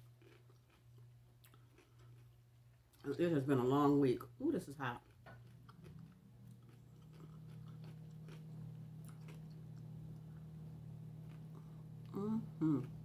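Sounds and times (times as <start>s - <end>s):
chewing and biting sandwich: 0.0s - 3.0s, 5.0s - 10.5s
steady low hum: 0.0s - 13.0s.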